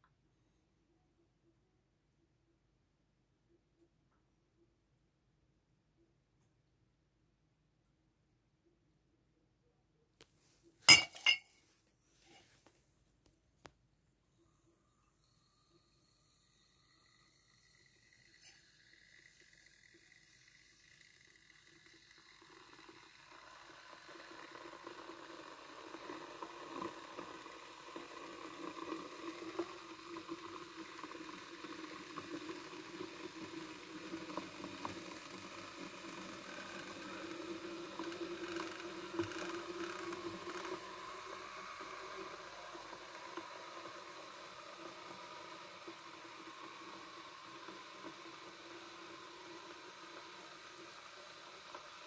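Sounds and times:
kettle heating water hiss: 0:13.6 - 0:52.0.

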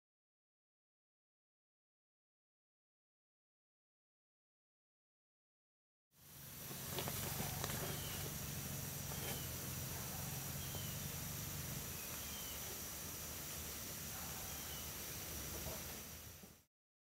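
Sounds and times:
steady hiss: 0:06.2 - 0:16.7.

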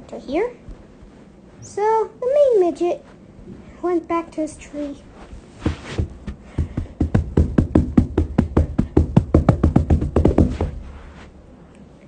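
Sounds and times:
rapid knocking taps: 0:06.2 - 0:10.8.

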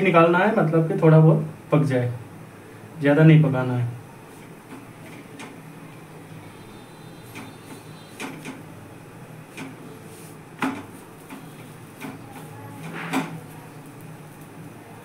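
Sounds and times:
knocks on iron pan: 0:10.6 - 0:11.4.

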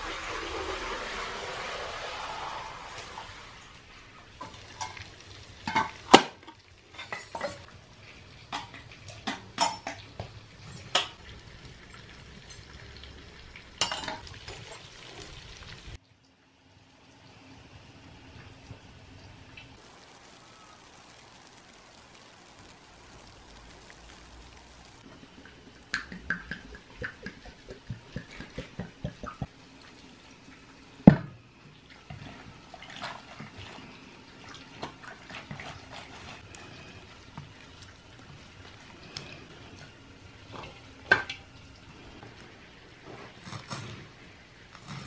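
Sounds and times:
water splashing in bowl: 0:19.8 - 0:29.6.

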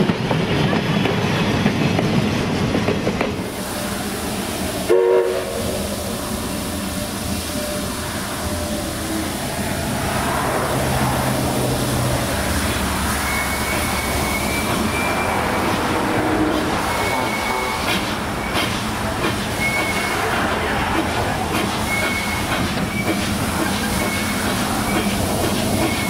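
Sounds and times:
train wheels clattering: 0:00.0 - 0:03.5, 0:12.5 - 0:26.0
train whistle toot: 0:04.8 - 0:06.0, 0:13.2 - 0:15.4, 0:16.4 - 0:18.6, 0:19.6 - 0:20.2, 0:21.8 - 0:23.2
high wheel squeal: 0:12.4 - 0:18.7, 0:19.4 - 0:20.3, 0:21.8 - 0:26.0.

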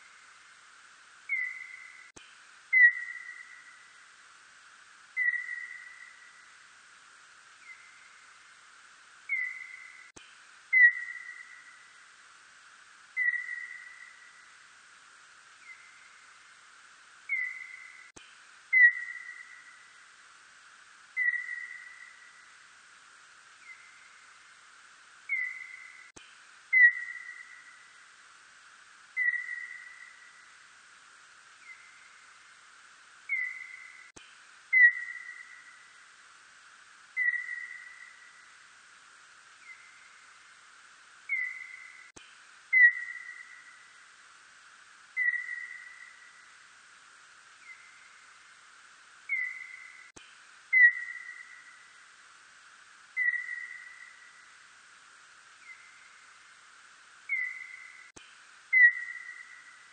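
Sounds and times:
steady hiss: 0:00.0 - 0:59.9
whistle-like bat calls: 0:01.3 - 0:02.1, 0:02.7 - 0:03.9, 0:05.2 - 0:06.4, 0:09.3 - 0:10.1, 0:10.7 - 0:11.9, 0:13.2 - 0:14.5, 0:17.3 - 0:18.1, 0:18.7 - 0:19.9, 0:21.1 - 0:22.5, 0:25.3 - 0:27.9, 0:29.1 - 0:30.5, 0:33.3 - 0:34.1, 0:34.7 - 0:35.9, 0:37.1 - 0:38.5, 0:41.3 - 0:42.1, 0:42.7 - 0:44.0, 0:45.1 - 0:46.6, 0:49.2 - 0:50.1, 0:50.7 - 0:52.0, 0:53.1 - 0:54.6, 0:55.6 - 0:56.3, 0:57.2 - 0:59.9.

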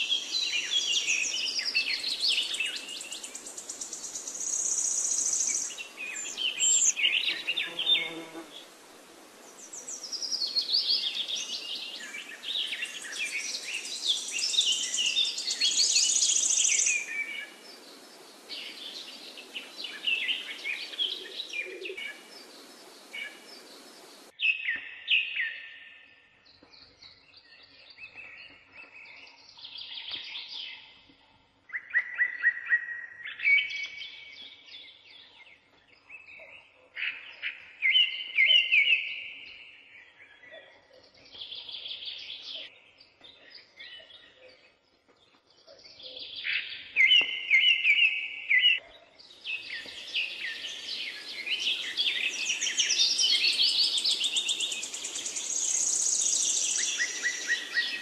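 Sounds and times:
birds chirping and trilling: 0:00.0 - 0:08.8, 0:09.4 - 0:58.0
steady hiss: 0:15.9 - 0:24.3.

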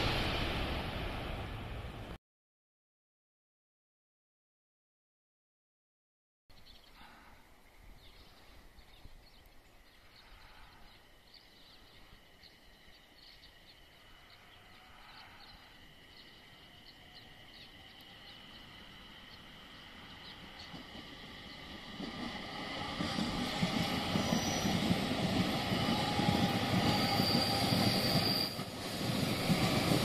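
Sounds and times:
approaching train high tone: 0:00.0 - 0:02.2, 0:12.6 - 0:30.0
birds chirping: 0:06.5 - 0:27.1
faint outdoor ambience: 0:06.5 - 0:30.0.

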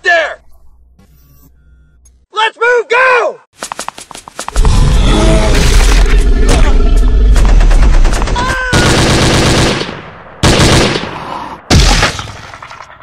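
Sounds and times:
gunfire blasts: 0:06.4 - 0:12.5
machine-gun fire: 0:06.5 - 0:11.1.

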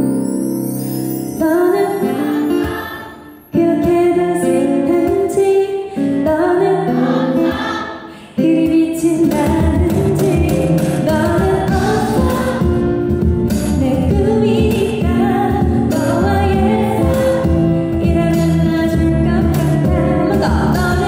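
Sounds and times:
woman singing pop ballad: 0:01.4 - 0:21.0
instrumental accompaniment: 0:09.1 - 0:21.0.

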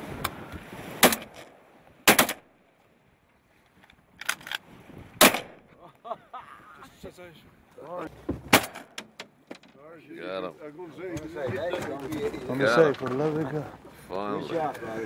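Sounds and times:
shotgun blasts: 0:02.0 - 0:02.4, 0:05.2 - 0:05.6.

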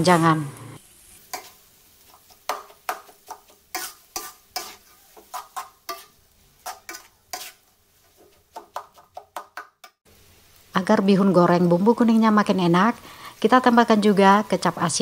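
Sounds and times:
faint sizzle: 0:00.0 - 0:09.2, 0:10.0 - 0:15.0
metal spoon scraping a wok: 0:01.2 - 0:09.1.

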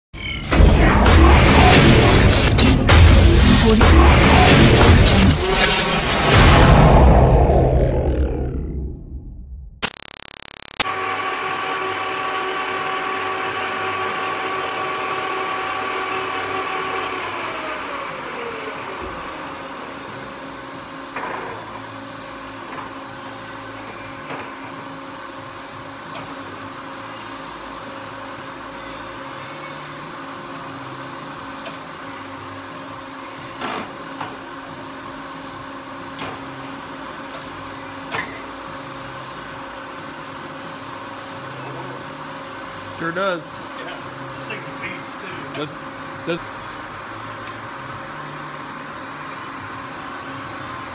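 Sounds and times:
lathe running with gear whine: 0:11.0 - 0:20.4.

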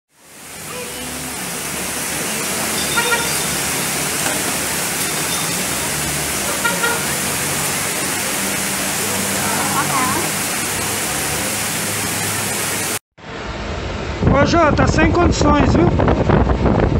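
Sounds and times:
floodwater rushing down a street: 0:00.1 - 0:13.0
heavy rain: 0:00.1 - 0:13.0.

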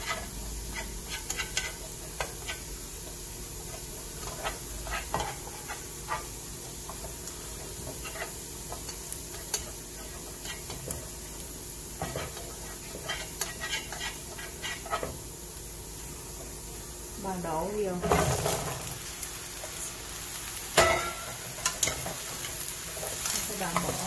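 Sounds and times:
chopsticks scraping a pan: 0:00.0 - 0:02.7, 0:03.7 - 0:11.0, 0:11.9 - 0:15.2, 0:20.8 - 0:24.0
garlic sizzling in oil: 0:00.0 - 0:24.0.

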